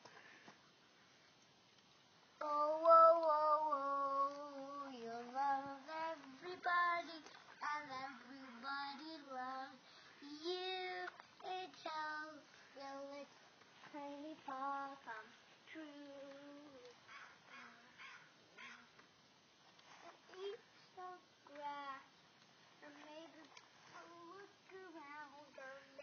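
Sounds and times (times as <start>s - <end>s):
child singing alone: 2.4s - 13.3s, 13.9s - 18.0s, 20.0s - 22.1s, 22.8s - 26.0s.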